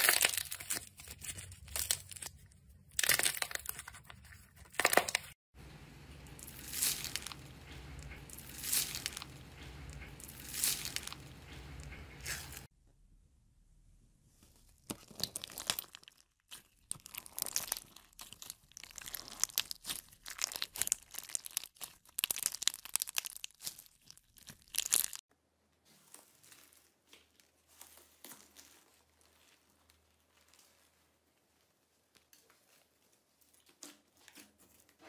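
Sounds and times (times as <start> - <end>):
sticky slime stretching crackle: 0.0 - 5.4, 6.2 - 12.7, 14.8 - 25.2
slime crackling and squelching: 0.0 - 12.7, 14.5 - 35.0.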